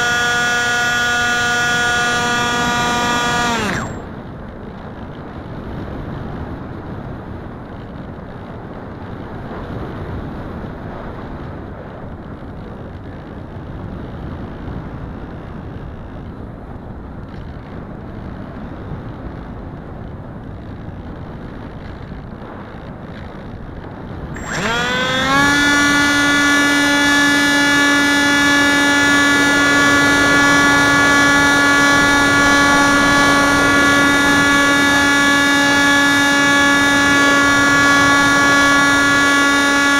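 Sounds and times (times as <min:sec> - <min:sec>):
electric motor and propeller whine: 0:00.0 - 0:04.2, 0:24.4 - 0:39.9.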